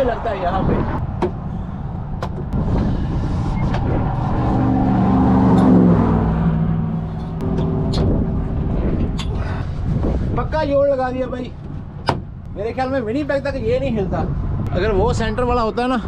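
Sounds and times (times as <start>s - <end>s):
vehicle passing by: 0.0s - 10.4s
steady low rumble: 0.0s - 16.0s.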